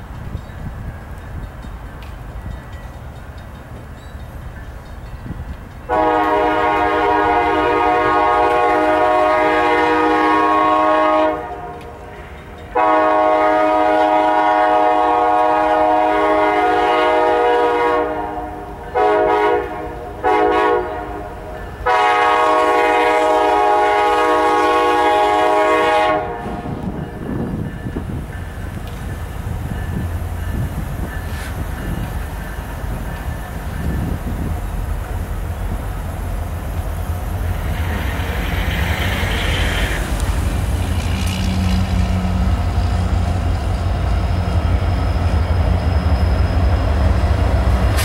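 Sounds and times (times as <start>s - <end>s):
train rumble: 0.0s - 48.0s
locomotive air horn blasts: 5.9s - 26.9s.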